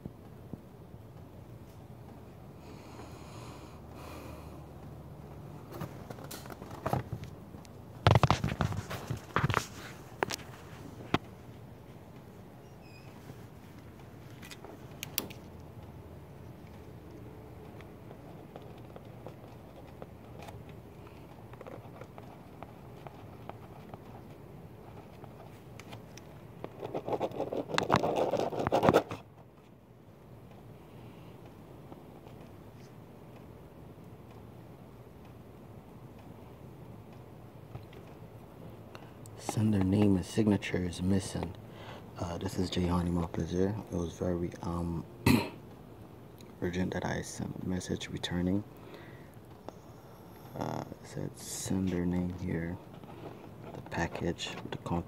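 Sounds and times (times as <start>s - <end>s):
paper and envelope rustling: 8.0s - 11.2s, 18.1s - 29.2s
paper crinkling: 8.1s - 11.2s, 18.1s - 29.2s
pen scratching on paper: 26.8s - 29.2s.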